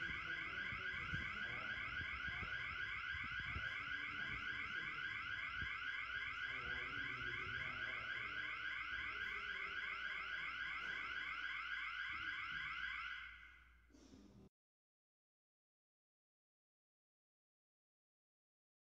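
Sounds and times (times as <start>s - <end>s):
electronic alarm rising sweep: 0.0s - 11.5s.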